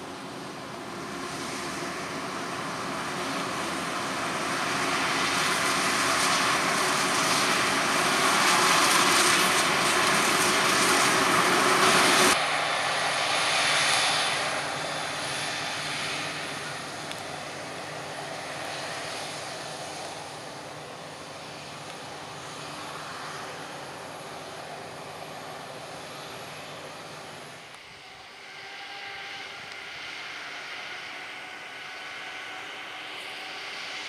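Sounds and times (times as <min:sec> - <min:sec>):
harvester engine and machinery drone: 0:00.0 - 0:34.0
thin high whine: 0:08.3 - 0:34.0.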